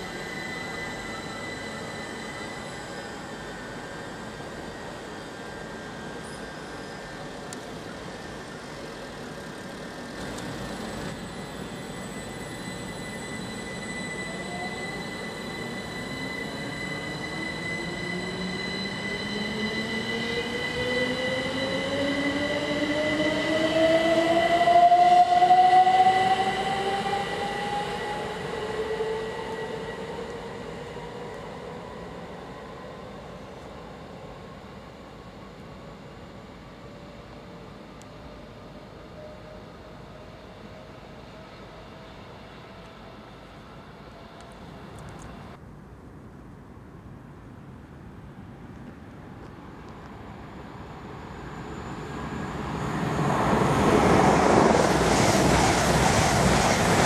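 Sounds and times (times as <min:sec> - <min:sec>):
train traction motors whining: 0:00.0 - 0:33.8
steady high-pitched tone: 0:00.0 - 0:45.6, 0:50.2 - 0:57.0.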